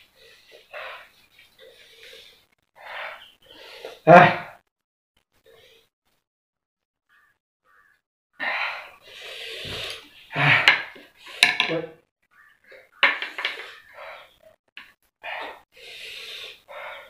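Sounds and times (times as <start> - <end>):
noisy breaths: 0.0 - 4.1, 8.4 - 11.5, 12.6 - 14.6, 15.2 - 17.0.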